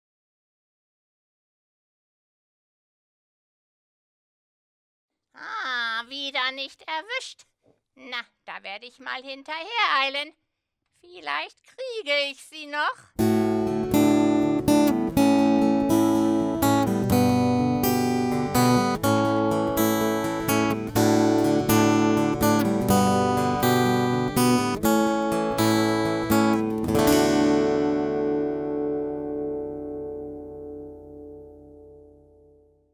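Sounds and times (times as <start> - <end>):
acoustic guitar strumming: 13.2 - 32.7.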